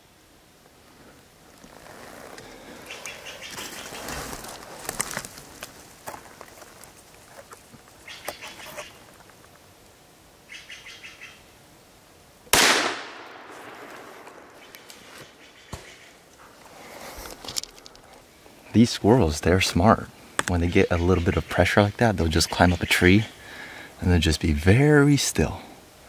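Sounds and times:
rifle shot: 12.5s - 14.6s.

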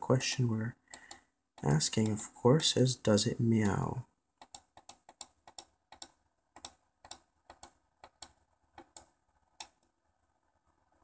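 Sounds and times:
pushbuttons clicking: 0.9s - 2.2s, 4.4s - 9.8s.

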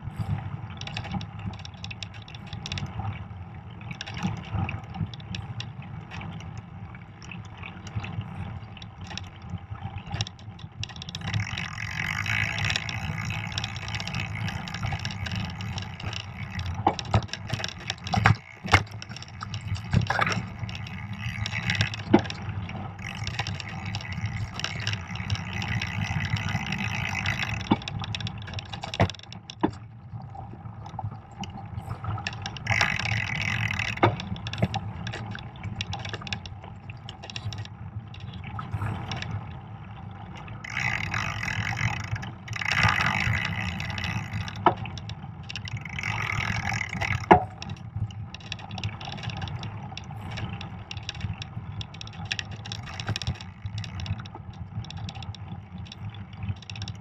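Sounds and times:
bike clicks and knocks: 0.8s - 3.0s, 10.0s - 29.9s, 32.0s - 38.3s, 40.6s - 57.0s.

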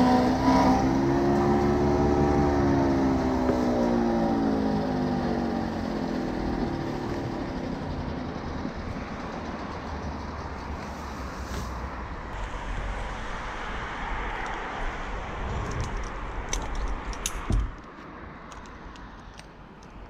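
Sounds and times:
steady rushing noise: 0.9s - 18.8s
climbing hardware clinking: 15.6s - 20.0s.

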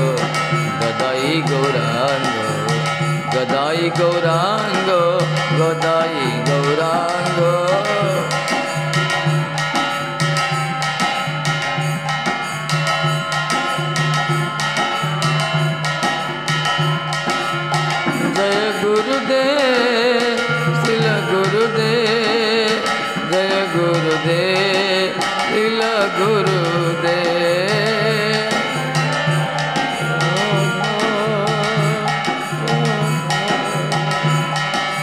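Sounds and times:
man chanting: 0.0s - 8.7s, 18.3s - 34.7s
drum beat: 0.0s - 35.0s
held drone: 22.8s - 35.0s.

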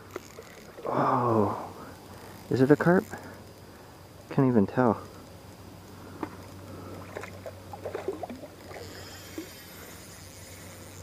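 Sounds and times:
faint insect chirping: 0.0s - 11.0s
fish splashing in water: 7.0s - 9.5s.

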